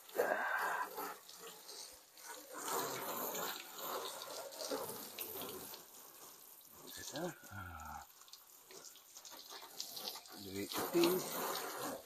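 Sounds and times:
water splashing on car and concrete: 0:00.0 - 0:12.0.

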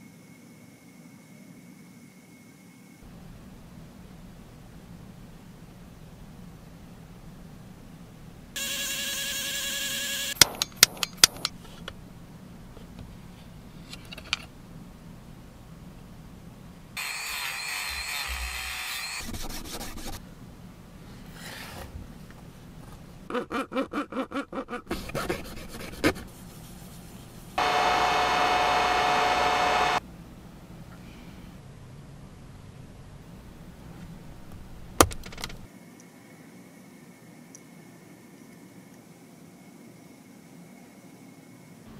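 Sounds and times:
tool whirring: 0:08.6 - 0:11.5, 0:17.0 - 0:19.4, 0:27.6 - 0:30.0
sharp clicks: 0:10.4 - 0:11.6
heat gun blowing: 0:27.6 - 0:30.0.

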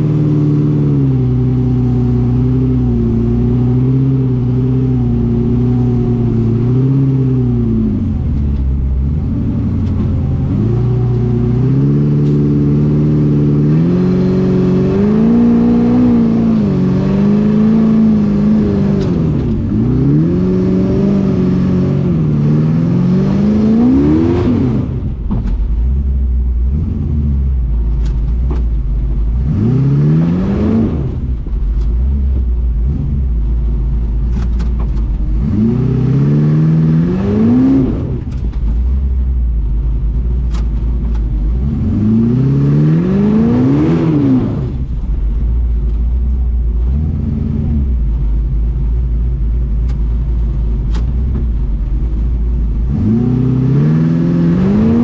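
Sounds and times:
off-road buggy engine revving: 0:00.0 - 0:55.0.

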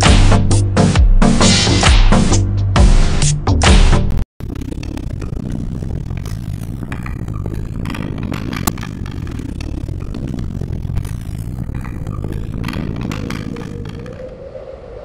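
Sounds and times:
faint clicks and clatter: 0:04.4 - 0:14.4
steady low rumbling: 0:04.4 - 0:14.4.

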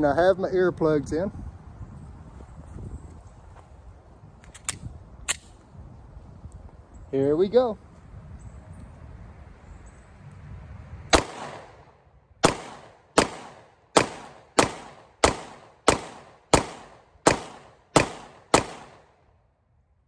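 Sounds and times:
pistol shots: 0:11.1 - 0:19.2.

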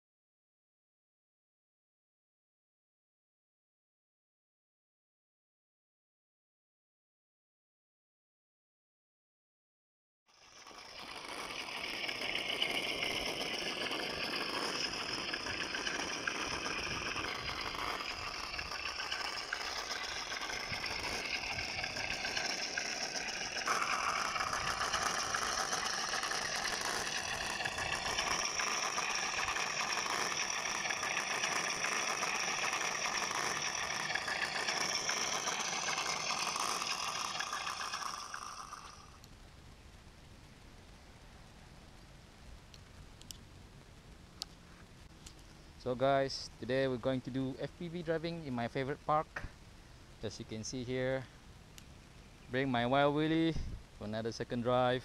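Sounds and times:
toy car electric motor whirring: 0:10.3 - 0:39.3.

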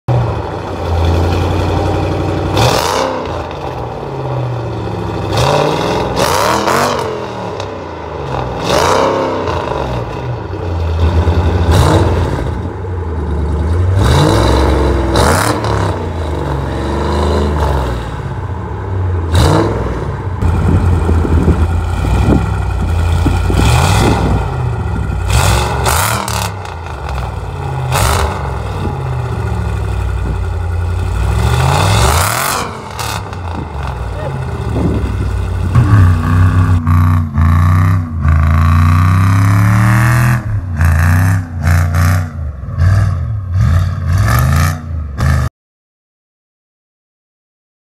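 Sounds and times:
car engine revving: 0:00.1 - 0:45.5
car engine idling with deep rumble: 0:18.1 - 0:37.4.

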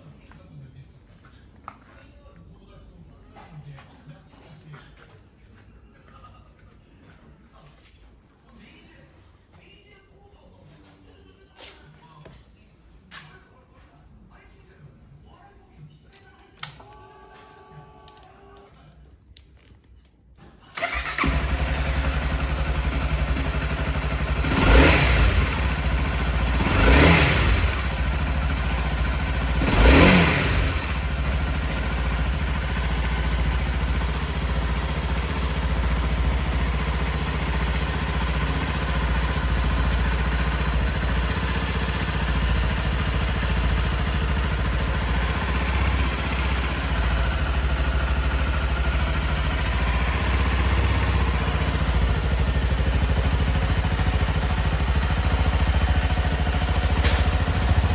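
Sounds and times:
motorcycle engine revving and idling: 0:20.8 - 0:57.9.

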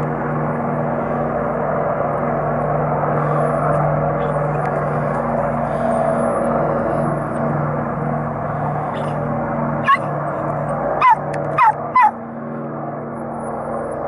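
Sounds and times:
air tanker engines droning: 0:00.0 - 0:14.0
high yelping animal calls: 0:09.8 - 0:10.1, 0:11.0 - 0:12.2.

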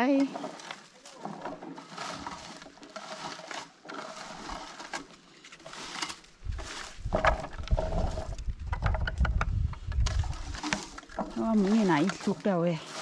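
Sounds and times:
rustling of bushes: 0:00.0 - 0:08.9, 0:09.5 - 0:13.0
wind buffeting microphone: 0:06.4 - 0:10.7.

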